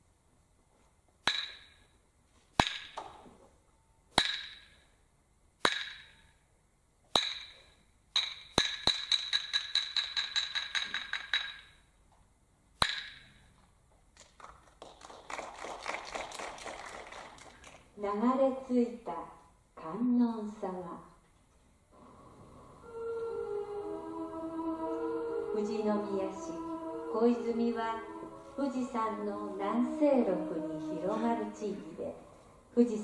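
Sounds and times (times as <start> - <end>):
wooden clappers clacking: 8.2 - 11.8.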